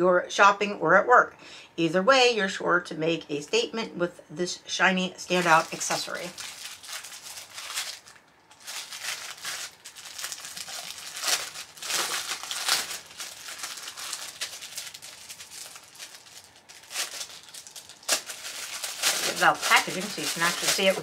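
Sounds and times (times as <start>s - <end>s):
plastic bag crinkling: 5.3s - 21.0s.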